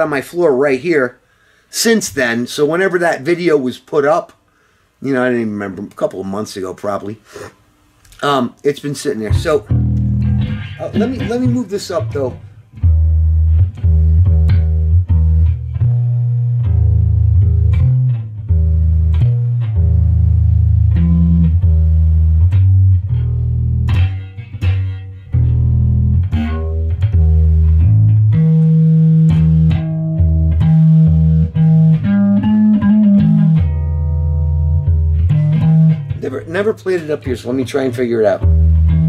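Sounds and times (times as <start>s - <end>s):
electric bass played solo: 9.2s - 37.5s, 38.2s - 39.0s.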